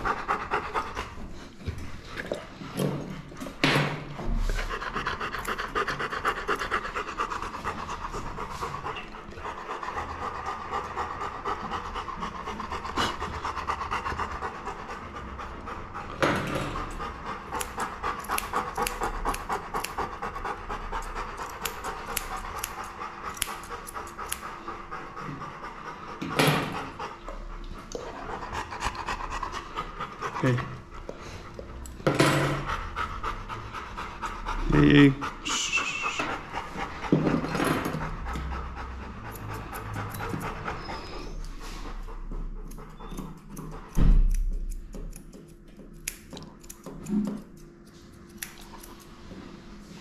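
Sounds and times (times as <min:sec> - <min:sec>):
dog panting: 0:00.0 - 0:47.5
scissors snipping fur: 0:16.7 - 0:24.6, 0:39.2 - 0:40.8, 0:41.4 - 0:49.2.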